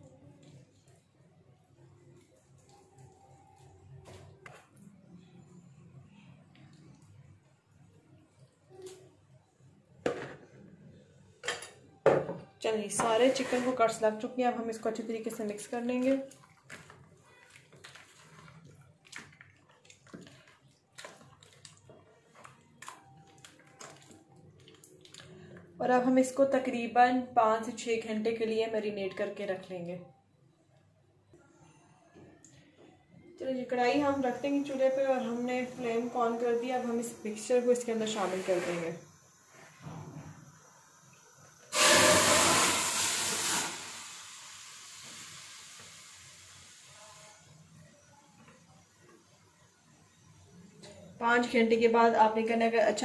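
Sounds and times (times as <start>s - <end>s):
wet squelching of kneaded meat: 15.7s - 25.7s
food sizzling in hot pan: 41.7s - 47.4s.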